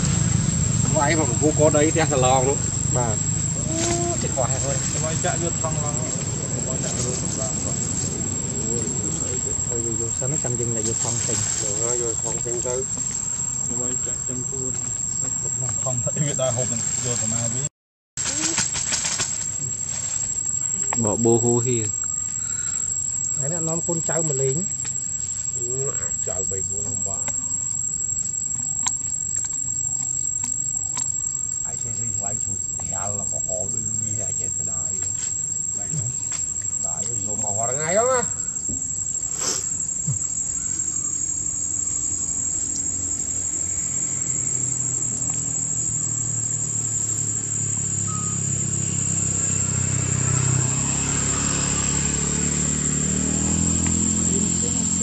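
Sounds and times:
low rumble: 0.0 - 11.7
high-pitched insect drone: 0.0 - 55.0
short squeaky calls: 21.9 - 23.1, 48.0 - 48.6.

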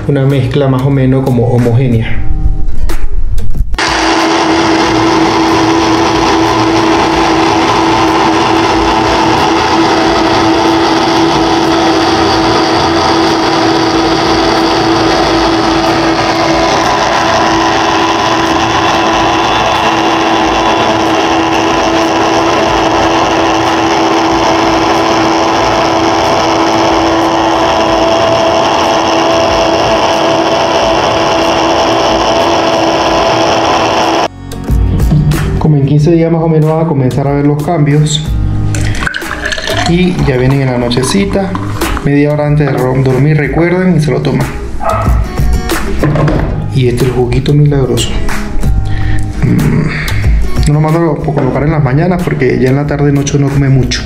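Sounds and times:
blender motor running: 3.8 - 34.3, 38.8 - 43.6.

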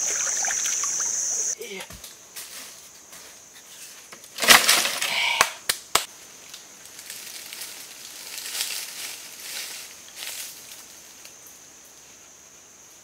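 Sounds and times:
dry branches crackling and snapping: 5.7 - 11.4.

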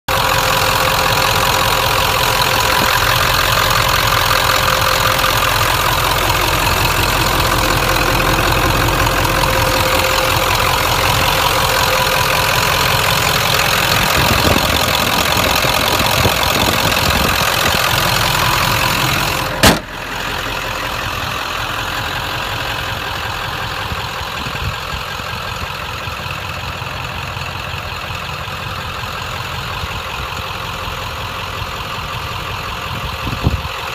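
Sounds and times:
diesel engine idling: 0.0 - 33.9
sharp bang: 19.5 - 20.0.

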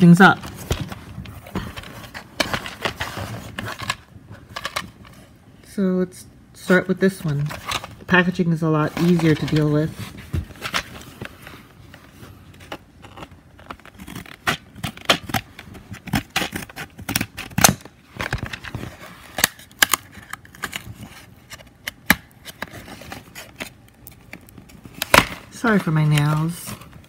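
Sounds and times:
plastic packaging crackling: 7.2 - 27.0.

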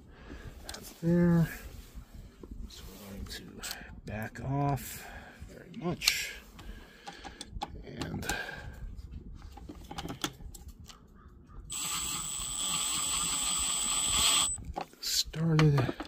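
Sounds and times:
cordless driver whining: 11.7 - 14.7.

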